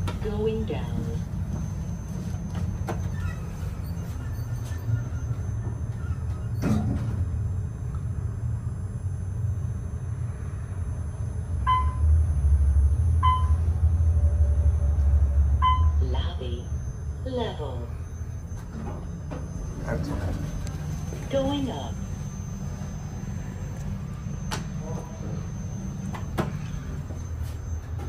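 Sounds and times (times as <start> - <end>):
elevator rumbling: 0.0 - 28.0
short beeps: 11.6 - 12.1, 13.1 - 13.8, 15.5 - 27.9.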